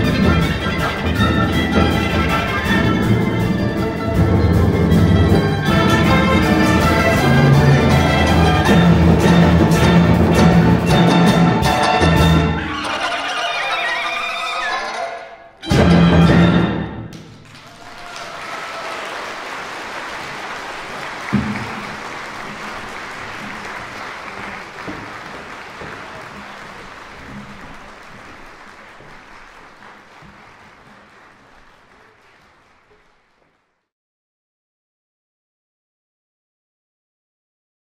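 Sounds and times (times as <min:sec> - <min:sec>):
audience applauding: 0:00.0 - 0:03.2, 0:05.6 - 0:15.0, 0:17.1 - 0:33.9.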